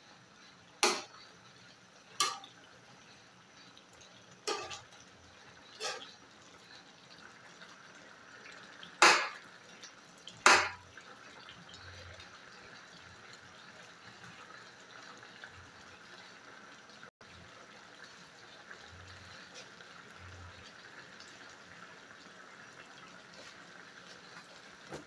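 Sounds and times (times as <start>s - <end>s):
sauce simmering in a pan: 0.0s - 25.0s
metal spoon scraping a pan: 4.5s - 4.9s, 5.7s - 6.2s.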